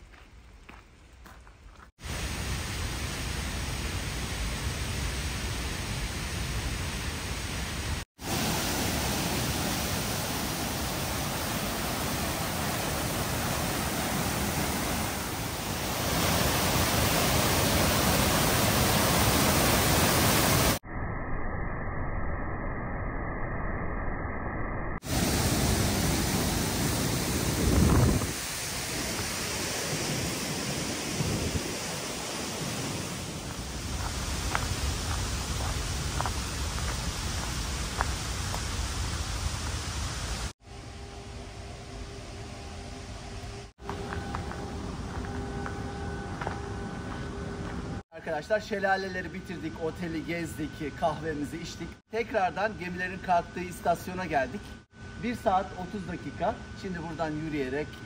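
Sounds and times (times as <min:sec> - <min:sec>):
falling water rushing: 0:02.0 - 0:20.8, 0:25.0 - 0:40.5.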